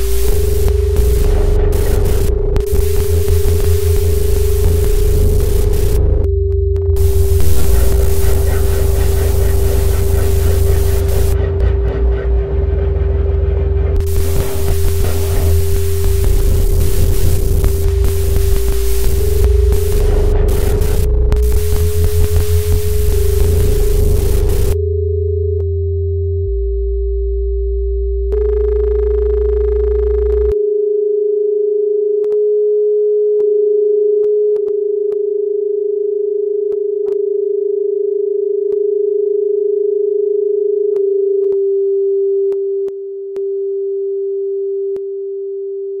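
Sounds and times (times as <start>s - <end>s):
deep bass tones: 0.0s - 30.6s
steady electronic sine tone: 0.0s - 46.0s.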